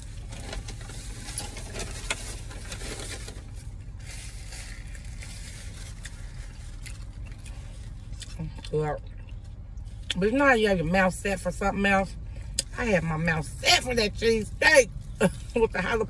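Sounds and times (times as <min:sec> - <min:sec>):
paper napkin crinkling: 0:00.0 - 0:07.2
steady low hum: 0:00.0 - 0:16.0.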